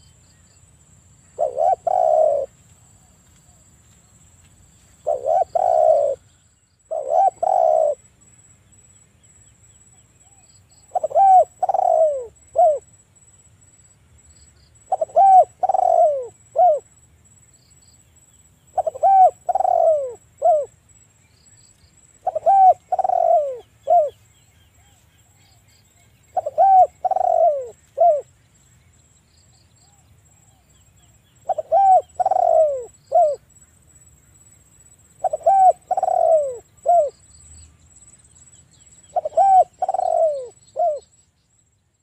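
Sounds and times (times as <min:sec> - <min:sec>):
dove cooing: 0:01.4 - 0:03.2, 0:05.0 - 0:06.3, 0:06.9 - 0:08.0, 0:10.3 - 0:12.9, 0:14.9 - 0:16.9, 0:18.7 - 0:20.8, 0:22.2 - 0:24.2, 0:26.3 - 0:28.3, 0:31.4 - 0:33.4, 0:35.2 - 0:37.2, 0:39.1 - 0:41.1.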